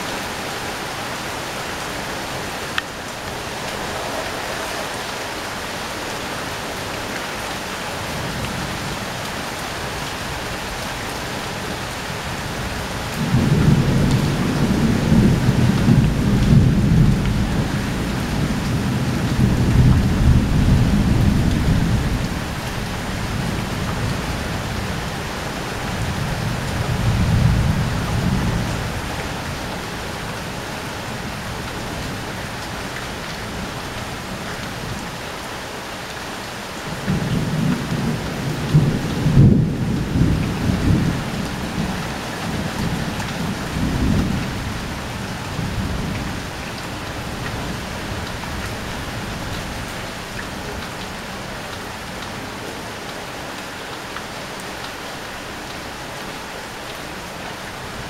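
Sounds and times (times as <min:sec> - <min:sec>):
rain on a corrugated roof: 0:00.0 - 0:58.0
thunder rumbling: 0:02.2 - 0:09.0.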